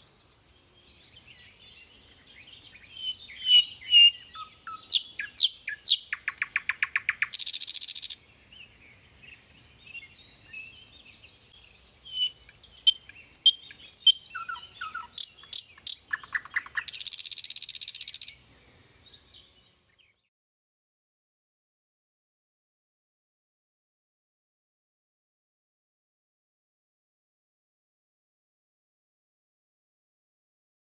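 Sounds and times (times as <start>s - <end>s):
songbirds chirping and whistling: 0.0s - 20.3s
bird trills: 2.9s - 8.2s, 11.8s - 18.4s.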